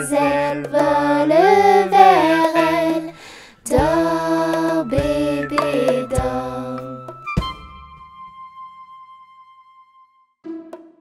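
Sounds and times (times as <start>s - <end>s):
person singing a lullaby: 4.8s - 7.1s.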